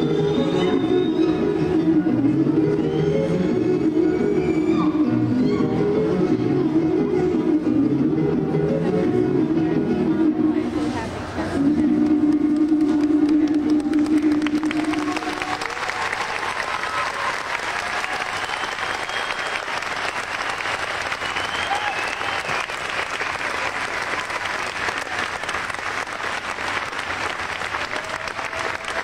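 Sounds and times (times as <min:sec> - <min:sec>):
audience applauding: 0:12.0 - 0:29.0.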